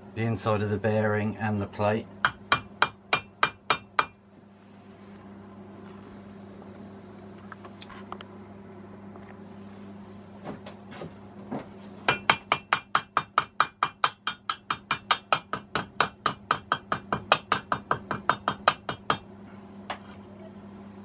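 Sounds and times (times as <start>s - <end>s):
hammer tapping steel tube: 2.2s - 4.2s, 12.1s - 19.3s.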